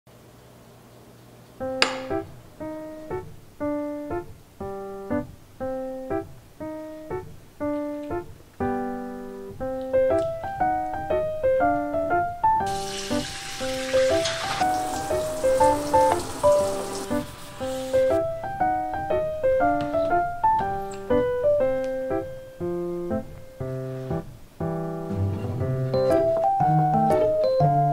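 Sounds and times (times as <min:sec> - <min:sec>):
playful piano music: 0:01.6 - 0:27.9
steady hiss: 0:12.5 - 0:26.7.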